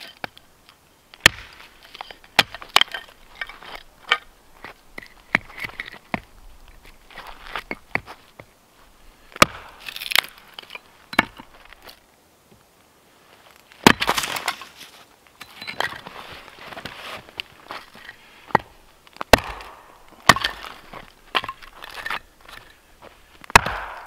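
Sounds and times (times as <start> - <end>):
wood crackling and splitting: 0.0 - 12.7, 13.3 - 24.0
axe chopping wood: 1.2 - 6.3, 9.4 - 10.3, 13.8 - 14.7, 18.5 - 22.2, 23.5 - 24.0.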